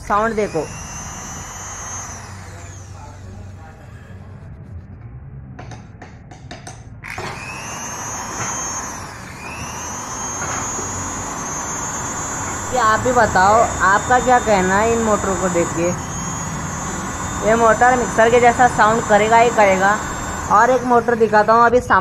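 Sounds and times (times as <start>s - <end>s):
sewing machine motor whining: 0.0s - 3.5s, 7.1s - 22.0s.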